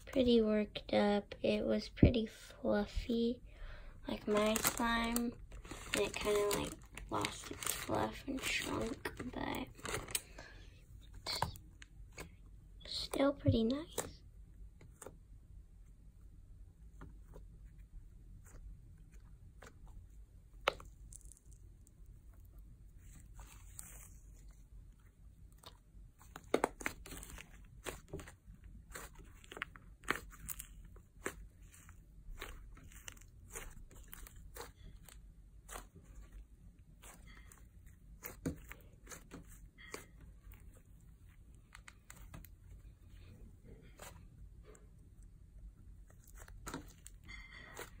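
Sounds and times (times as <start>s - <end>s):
slime crackling and popping: 4.1s - 10.3s, 25.5s - 40.8s.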